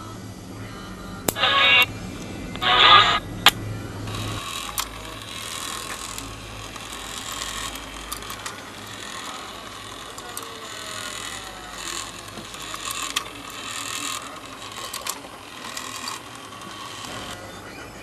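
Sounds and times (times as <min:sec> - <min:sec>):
loud tone: 0:00.0 - 0:18.0
toy motor and gears clicking: 0:04.1 - 0:17.5.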